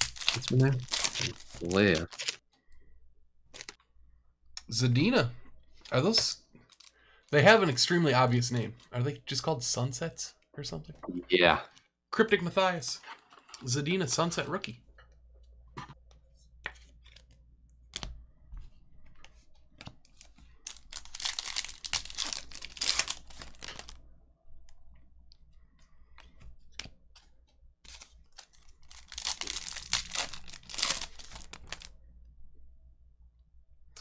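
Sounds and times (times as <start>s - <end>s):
card pack wrappers tearing: 0.0s - 2.4s, 20.2s - 24.0s, 27.8s - 31.9s.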